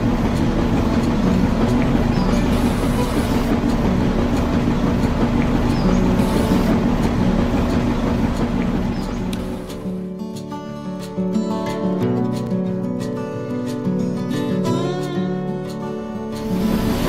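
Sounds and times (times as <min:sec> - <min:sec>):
small motor whirring: 0:00.0 - 0:10.0, 0:16.4 - 0:17.0.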